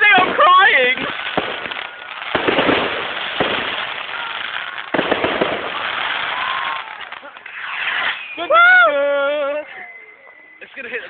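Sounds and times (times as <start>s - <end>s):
fireworks sharp pops: 0.0s - 8.4s
fireworks crackling hiss: 0.0s - 11.0s.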